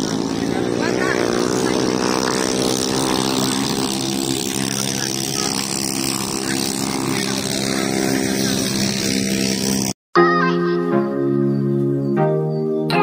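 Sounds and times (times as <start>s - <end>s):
small engine idling: 0.0s - 10.0s.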